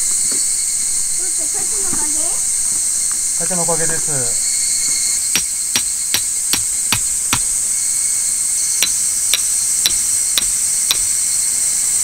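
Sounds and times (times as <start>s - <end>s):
insects droning: 0.0s - 12.0s
hammer striking tent peg: 5.3s - 7.5s, 8.8s - 11.1s.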